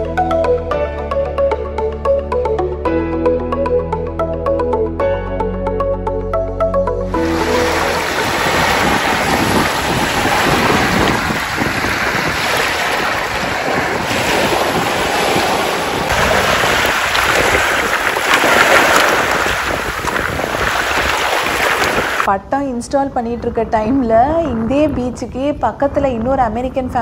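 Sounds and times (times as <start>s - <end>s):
waves washing over pebbles: 7.2s - 22.3s
wind buffeting microphone: 7.2s - 27.0s.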